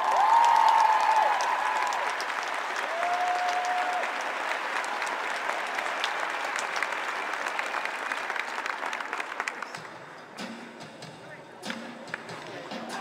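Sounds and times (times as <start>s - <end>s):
audience applauding: 0.0s - 10.0s
music: 9.7s - 13.0s.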